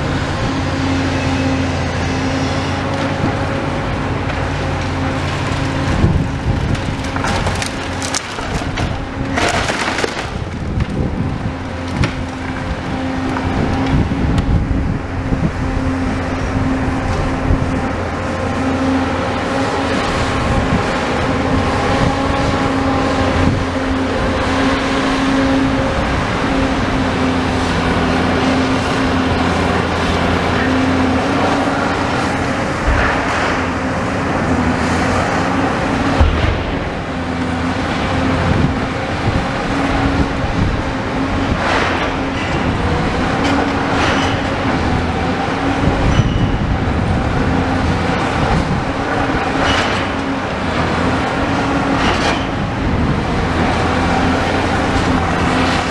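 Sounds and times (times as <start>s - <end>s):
excavator diesel engine running: 0.0s - 55.9s
wood splintering: 2.5s - 14.9s
debris falling: 4.2s - 14.4s.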